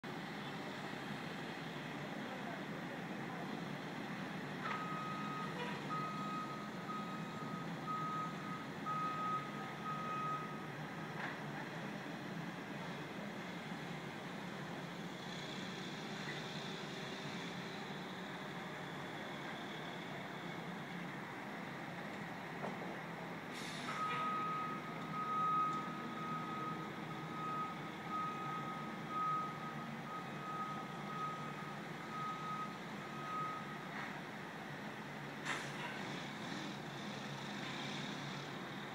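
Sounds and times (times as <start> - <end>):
truck reversing alarm beeping: 4.6 - 10.8, 23.6 - 34.0.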